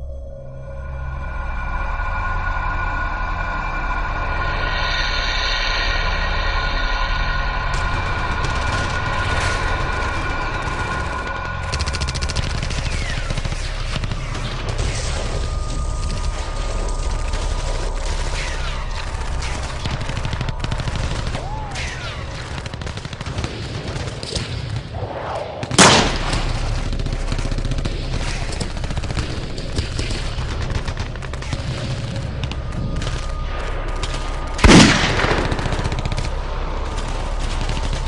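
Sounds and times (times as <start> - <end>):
ongoing gunfire: 7.7 - 38.0.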